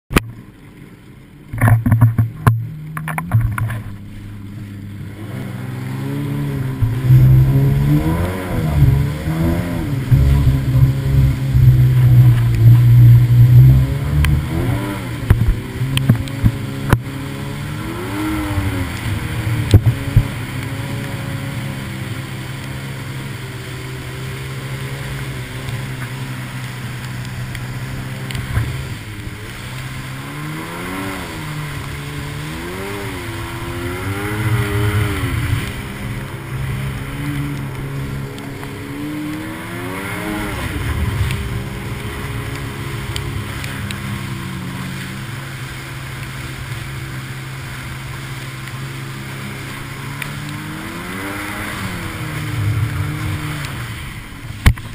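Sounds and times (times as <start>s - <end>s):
rushing water and spray: 0.0s - 54.9s
watercraft engine running: 0.1s - 54.9s.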